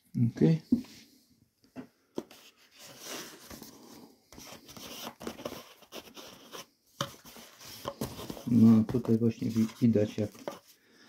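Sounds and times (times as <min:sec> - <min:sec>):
paper packaging rustling: 0:02.2 - 0:10.7.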